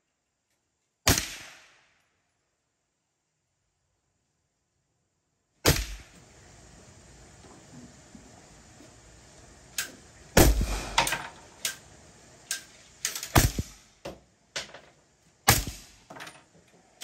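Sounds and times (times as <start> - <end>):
suppressed rifle shots: 1.1 - 1.8, 10.4 - 11.3, 13.3 - 13.8.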